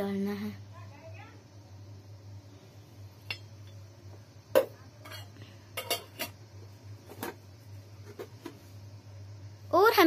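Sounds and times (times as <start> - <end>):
faint low hum: 0.0 - 10.0
utensils clinking on metal bowl: 5.0 - 6.4.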